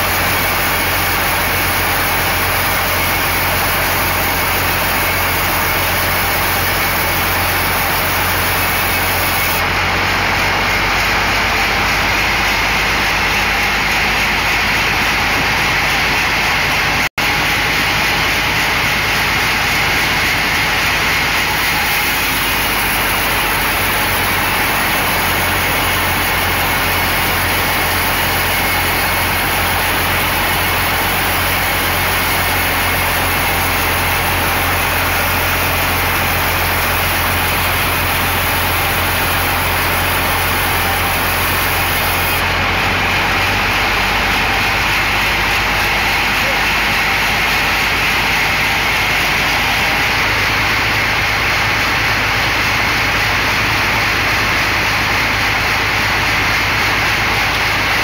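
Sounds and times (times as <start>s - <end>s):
band saw cutting log: 0.0s - 53.7s.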